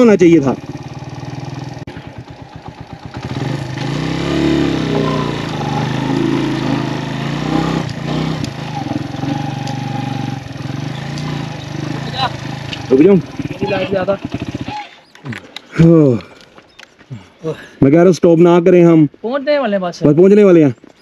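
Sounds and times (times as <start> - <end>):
motorcycle engine revving: 0.0 - 15.4.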